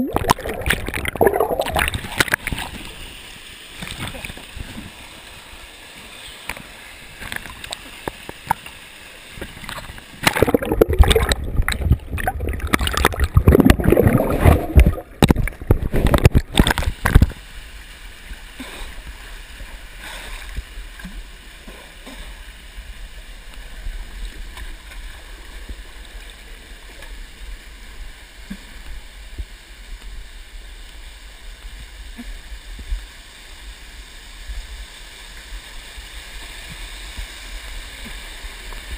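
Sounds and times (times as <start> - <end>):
waterfall pouring into pool: 0.0 - 5.8, 6.7 - 20.3.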